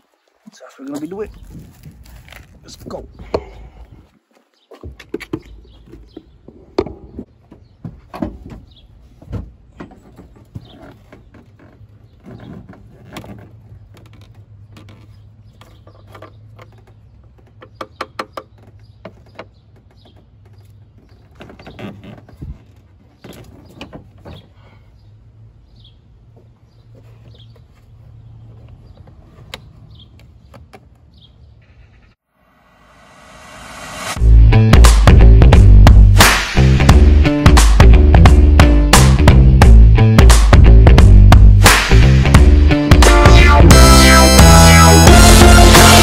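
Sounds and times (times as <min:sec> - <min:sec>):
plastic jugs clicking and knocking: 0:04.8 - 0:24.5.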